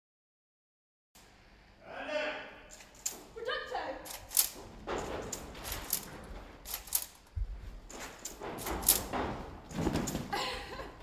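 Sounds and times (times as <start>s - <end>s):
rustling: 4.1s - 10.4s.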